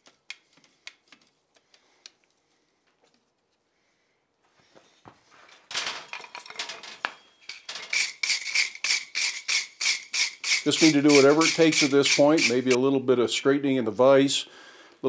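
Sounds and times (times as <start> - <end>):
metallic clinks and knocks: 5.7 - 11.8.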